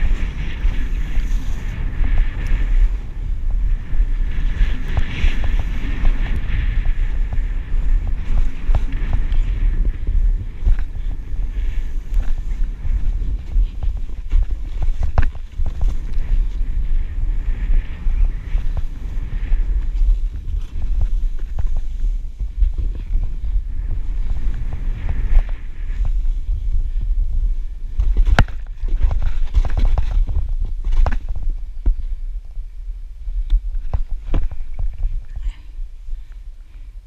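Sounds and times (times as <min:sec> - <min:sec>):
snow hissing under snowboard: 0:00.0 - 0:14.7
wind buffeting microphone: 0:00.0 - 0:37.0.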